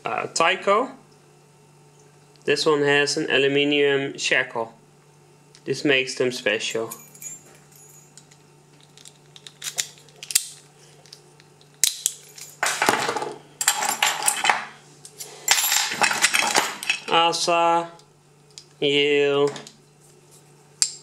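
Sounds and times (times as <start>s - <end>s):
low steady hum: 0.0s - 21.0s
metallic clinking and clattering: 6.9s - 14.7s.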